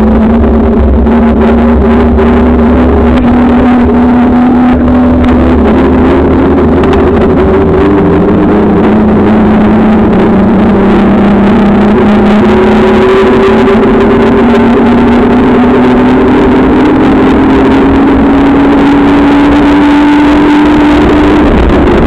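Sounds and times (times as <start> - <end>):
droning hum: 0.0 - 22.0
wind rush on microphone: 0.0 - 22.0.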